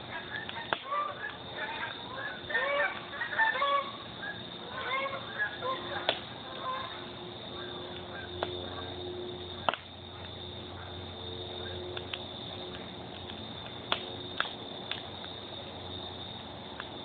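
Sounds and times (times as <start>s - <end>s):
wood fire crackling: 0.0s - 3.4s, 5.5s - 17.0s
sharp fire pops: 0.5s - 0.9s, 6.0s - 6.3s, 9.6s - 10.0s, 11.9s - 15.4s.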